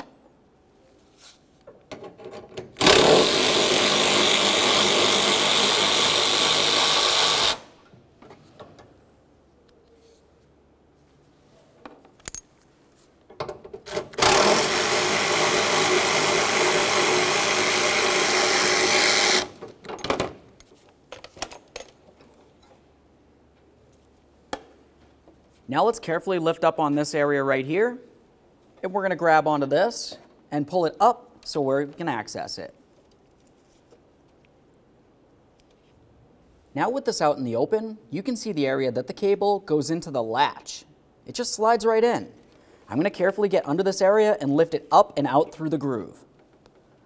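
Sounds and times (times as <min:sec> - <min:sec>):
power tool spinning socket: 0:02.8 - 0:07.7, 0:13.9 - 0:19.6.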